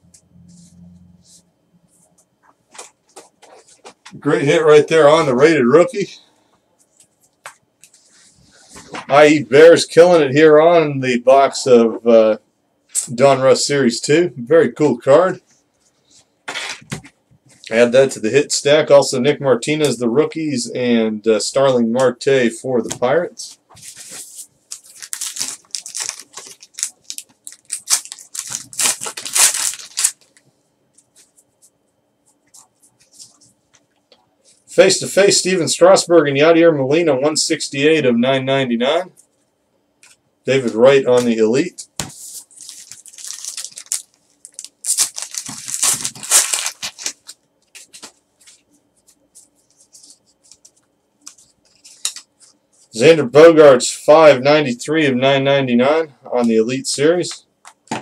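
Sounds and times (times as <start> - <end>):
wrapper being torn and crinkled: 24.7 - 30.4, 42.5 - 48.1.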